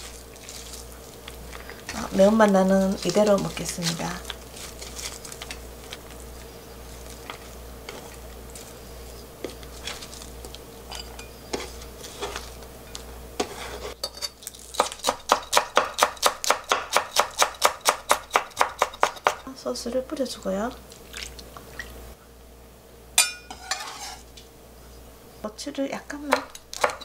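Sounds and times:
knife chopping on wooden board: 14.8s - 19.4s, 26.3s - 27.0s.

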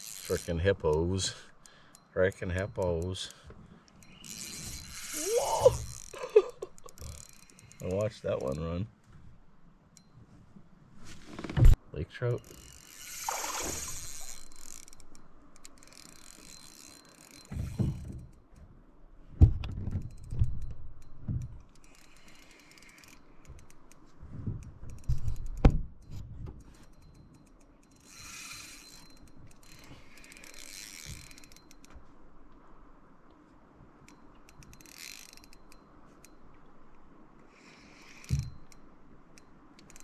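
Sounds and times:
fishing reel ratcheting: 0.0s - 8.6s, 12.4s - 18.1s, 20.0s - 24.0s, 26.7s - 31.9s, 34.0s - 36.5s, 37.5s - 40.0s.

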